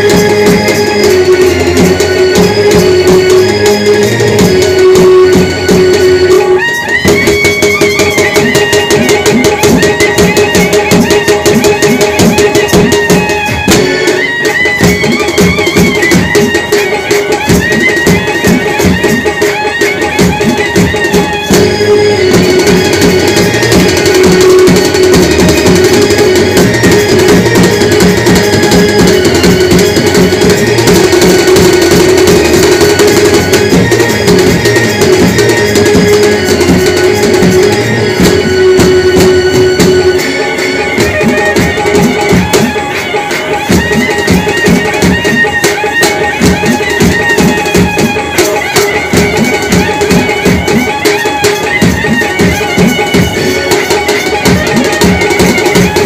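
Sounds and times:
bass drum and drums beating: 0:00.0 - 0:42.9
wind instrument melody: 0:00.0 - 0:56.0.

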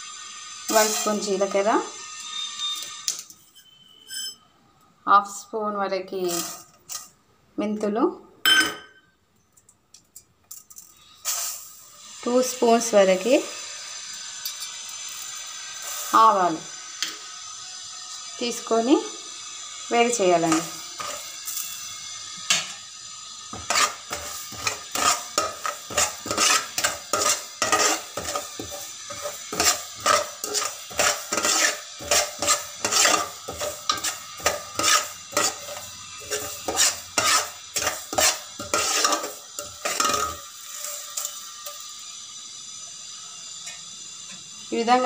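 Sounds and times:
metal spoon scraping seeds in pot: 0:00.7 - 0:01.6, 0:06.2 - 0:07.1, 0:10.7 - 0:13.6, 0:20.0 - 0:21.9, 0:23.6 - 0:41.9.

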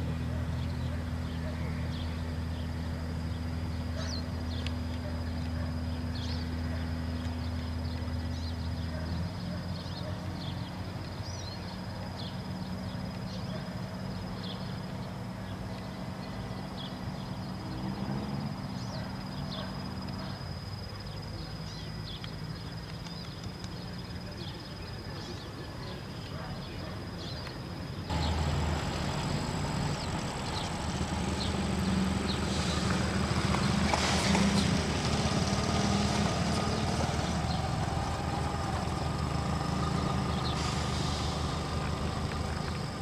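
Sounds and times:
small birds chirping: 0:00.1 - 0:43.0
engine idling: 0:28.1 - 0:43.0.

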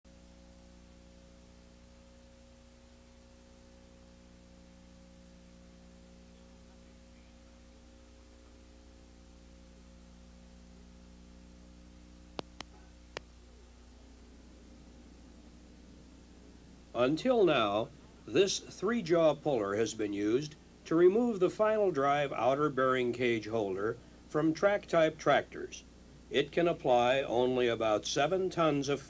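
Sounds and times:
electrical hum: 0:00.1 - 0:29.0
faint film soundtrack hiss: 0:00.1 - 0:29.0
sharp clicks: 0:12.4 - 0:13.3.

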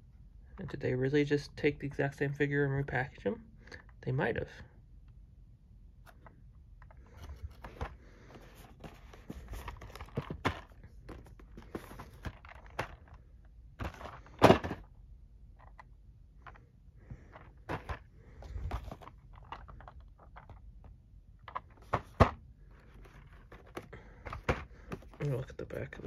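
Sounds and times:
boxes rustling: 0:06.8 - 0:14.9, 0:16.4 - 0:20.9, 0:21.5 - 0:26.0.

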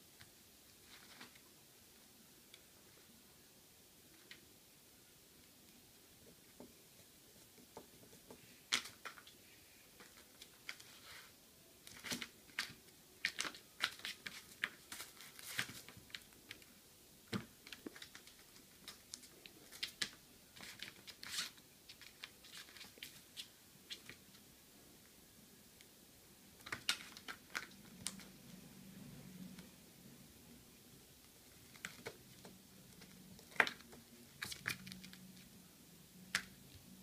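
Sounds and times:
rustles of paper and plastic: 0:11.9 - 0:16.7.

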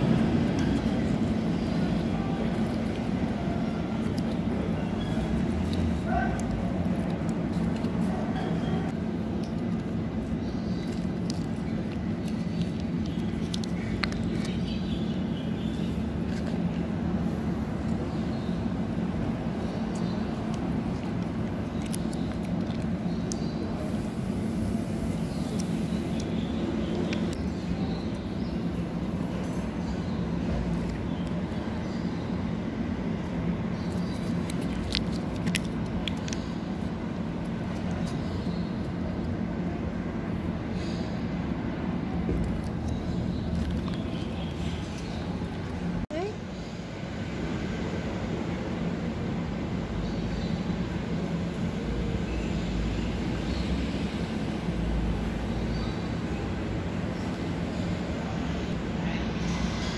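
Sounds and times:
cat chewing wet clicks: 0:00.0 - 0:08.6, 0:09.2 - 0:16.8, 0:19.2 - 0:24.1, 0:33.9 - 0:39.4
low background hum: 0:00.0 - 0:59.9.

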